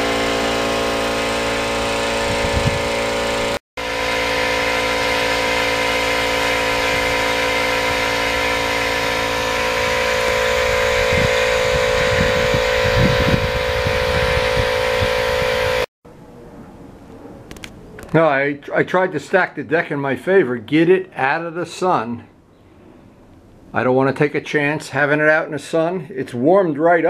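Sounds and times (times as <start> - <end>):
engine running steadily: 0.0 - 15.9
low rumbling: 0.0 - 18.1.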